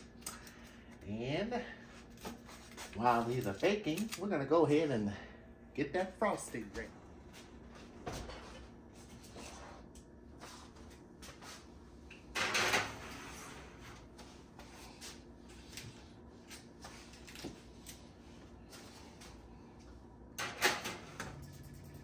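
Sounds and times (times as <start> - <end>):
metal pans clattering on racks: 12.3 - 13.4.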